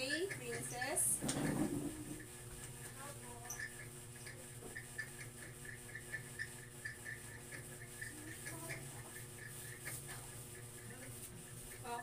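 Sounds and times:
low electrical hum: 0:00.0 - 0:12.0
faint high-pitched ticking: 0:03.3 - 0:09.8.

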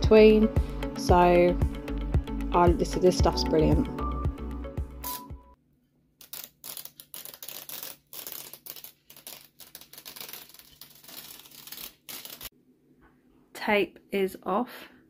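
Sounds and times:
masking tape being peeled off: 0:05.1 - 0:05.3, 0:06.2 - 0:12.5.

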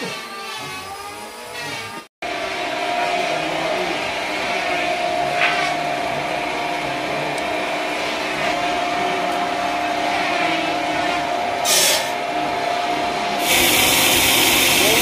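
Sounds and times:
band sawmill humming and whining: 0:00.0 - 0:15.0
hiss: 0:11.6 - 0:12.2, 0:13.4 - 0:15.0.

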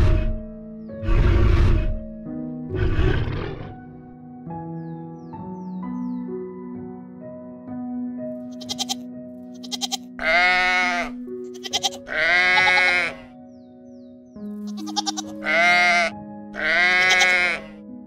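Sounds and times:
background music: 0:00.0 - 0:18.0
quavering livestock bleats: 0:08.5 - 0:13.4, 0:14.6 - 0:17.8.

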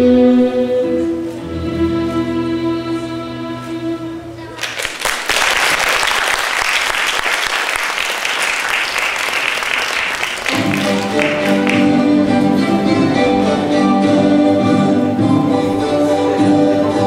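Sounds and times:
string music with held notes: 0:00.0 - 0:04.6, 0:10.5 - 0:17.0
audience applauding: 0:04.6 - 0:12.1.

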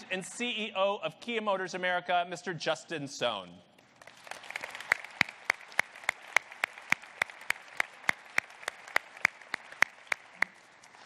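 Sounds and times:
audience applauding: 0:04.0 - 0:11.0
single person clapping steadily: 0:04.0 - 0:11.0.

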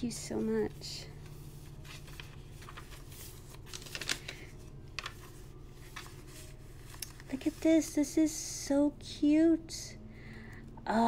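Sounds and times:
steady low hum: 0:00.0 - 0:11.0
paper pages rustling: 0:00.1 - 0:08.1.

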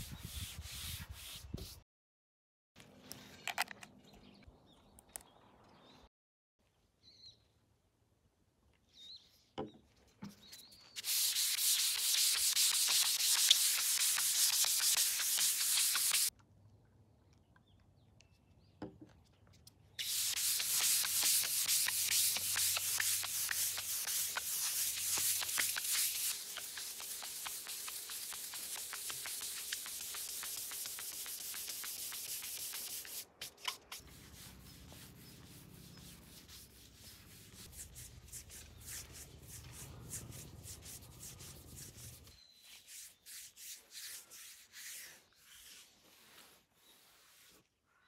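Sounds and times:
pad rubbing on wood: 0:11.0 - 0:16.3, 0:20.0 - 0:33.2, 0:33.9 - 0:42.3.

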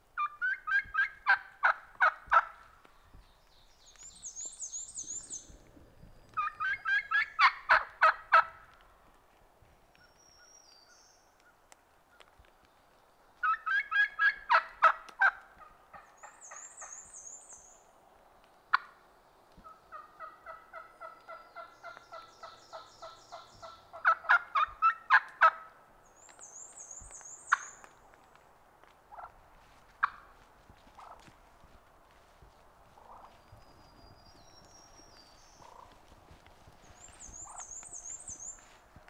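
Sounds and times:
turkey rattling calls: 0:00.2 - 0:02.6, 0:06.4 - 0:08.6, 0:13.4 - 0:17.0, 0:19.9 - 0:25.6, 0:30.0 - 0:30.3, 0:35.6 - 0:36.0.

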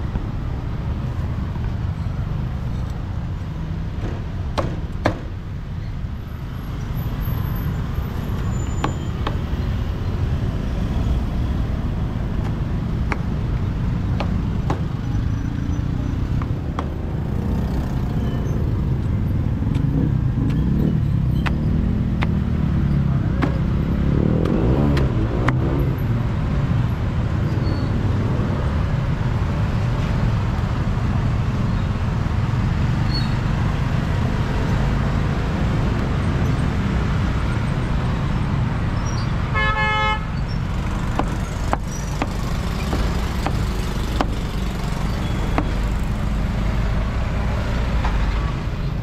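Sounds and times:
street traffic rumble: 0:00.0 - 0:49.0
vehicle horn toot: 0:39.5 - 0:40.3
cleaver striking chopping block: 0:41.1 - 0:44.5.

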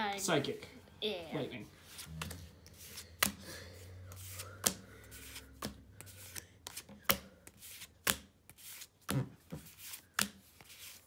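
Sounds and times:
trading cards snapping: 0:02.2 - 0:03.4, 0:04.1 - 0:07.3.

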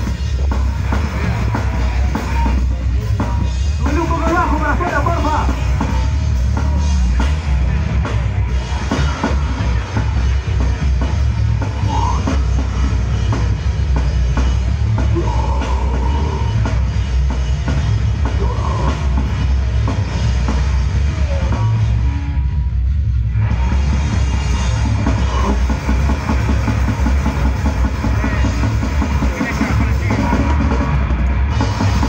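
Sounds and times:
electric guitar: 0:00.0 - 0:32.0
fast dense drumming: 0:00.0 - 0:32.0.

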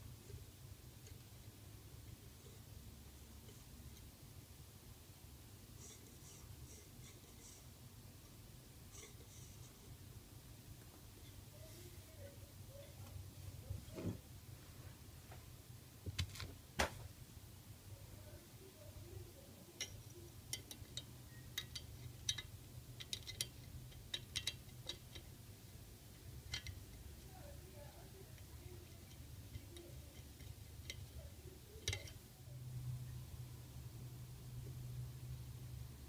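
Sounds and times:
small metal clicks and taps: 0:19.8 - 0:25.4, 0:26.1 - 0:27.0, 0:28.4 - 0:31.2, 0:31.8 - 0:32.2.

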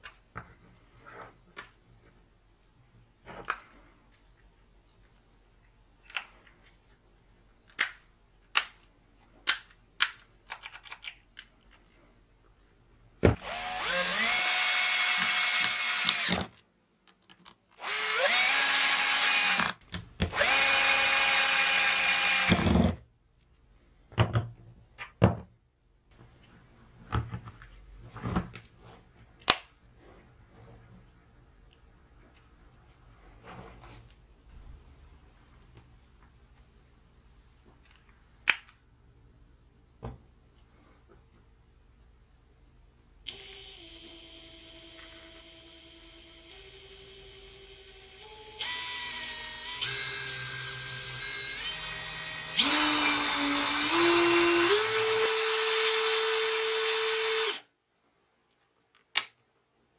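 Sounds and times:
plastic tool handling clicks: 0:09.4 - 0:11.8
cordless drill motor whining: 0:13.4 - 0:16.5, 0:17.8 - 0:22.9, 0:43.3 - 0:57.6.

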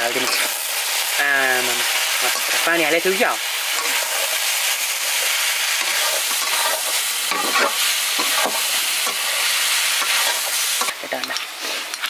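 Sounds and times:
meat frying and sizzling: 0:00.0 - 0:12.0
ladle scraping a pan: 0:03.8 - 0:11.9.

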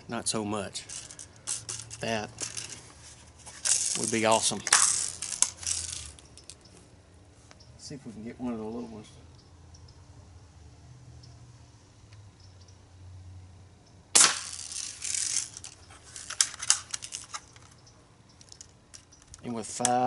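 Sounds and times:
clicks and rattles of gun handling: 0:00.8 - 0:06.8, 0:14.2 - 0:20.0
air rifle shot: 0:14.2 - 0:14.6.

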